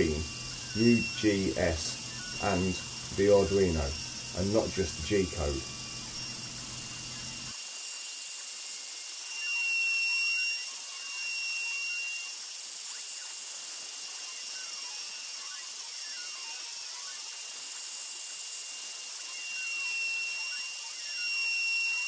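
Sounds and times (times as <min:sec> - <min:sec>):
stepper motors whining: 0:00.0 - 0:07.5
router spindle whine: 0:00.0 - 0:22.0.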